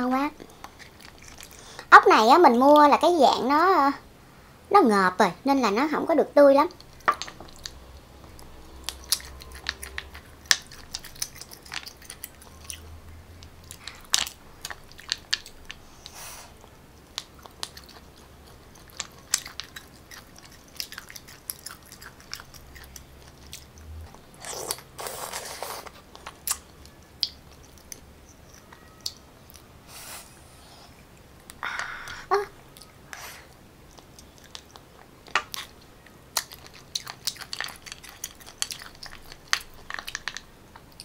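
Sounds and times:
chewing and biting: 0:00.6 - 0:01.6, 0:06.8 - 0:15.8, 0:17.0 - 0:29.7, 0:33.8 - 0:41.0.

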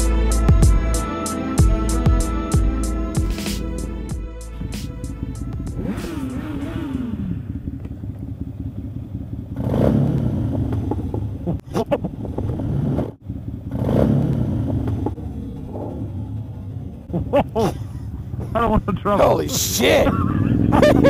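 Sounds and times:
motorcycle engines idling: 0:01.6 - 0:12.6, 0:13.2 - 0:21.0
motorcycle revving hard: 0:05.2 - 0:16.4, 0:19.8 - 0:21.0.

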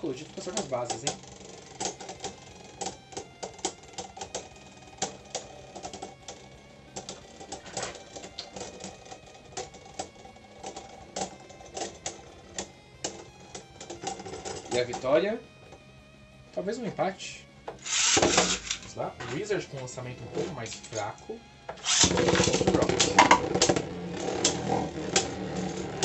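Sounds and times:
faint background music: 0:00.0 - 0:26.0
spinning tops clashing plastic clacks: 0:00.3 - 0:15.1, 0:17.8 - 0:18.9, 0:21.8 - 0:26.0.

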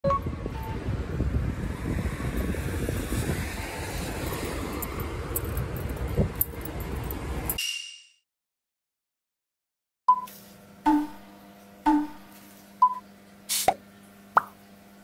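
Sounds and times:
traffic rumble: 0:00.0 - 0:07.6.

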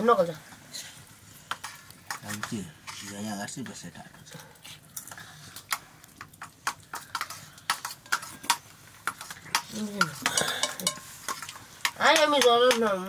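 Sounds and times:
kitchen utensils knocking: 0:09.6 - 0:11.1.

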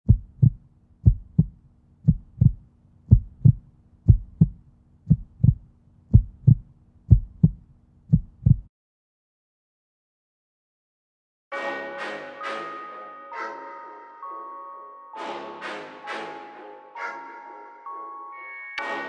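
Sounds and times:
heartbeat thumps: 0:00.0 - 0:08.7
faint steady hum: 0:00.1 - 0:08.6.

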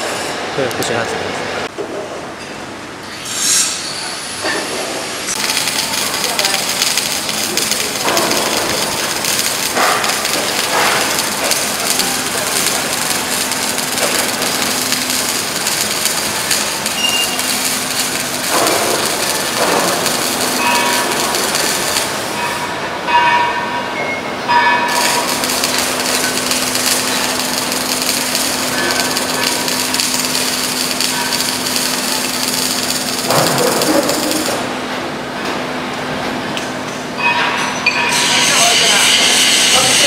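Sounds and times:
loud hiss: 0:05.3 - 0:22.4
machine hum: 0:05.3 - 0:23.2, 0:24.8 - 0:36.5
high ringing tone: 0:10.2 - 0:18.3, 0:19.5 - 0:33.6.

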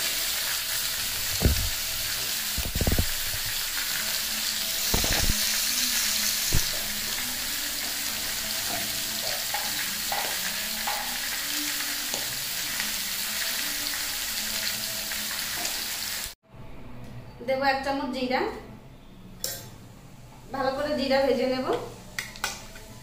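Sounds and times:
fish frying in hot oil: 0:00.0 - 0:16.4.

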